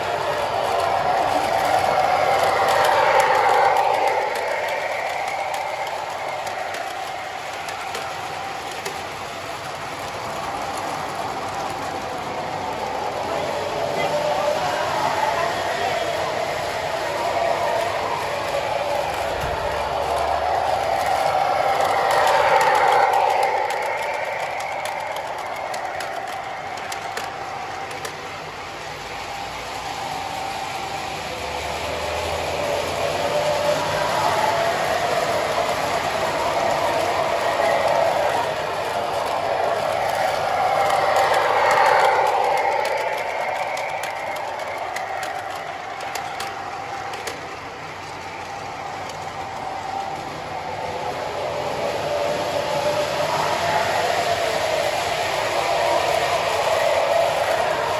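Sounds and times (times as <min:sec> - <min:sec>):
model train motor whine: 0:00.0 - 0:57.9
rail-joint clicks: 0:13.9 - 0:50.4.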